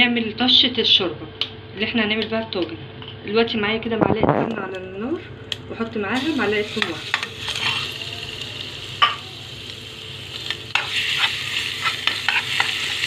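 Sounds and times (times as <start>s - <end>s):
garlic sizzling in a pan: 5.8s - 13.0s
metal spoon scraping a pan: 6.6s - 8.0s, 10.7s - 13.0s.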